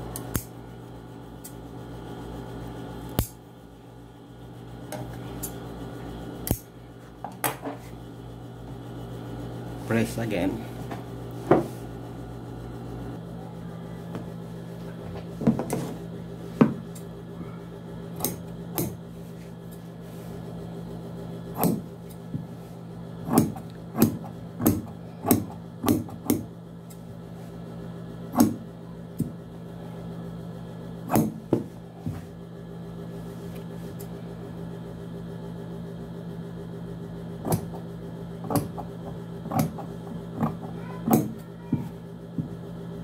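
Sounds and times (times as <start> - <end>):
steady low hum: 0.0 - 43.0
shears snipping fabric: 3.1 - 3.4, 6.4 - 6.7, 39.5 - 42.0.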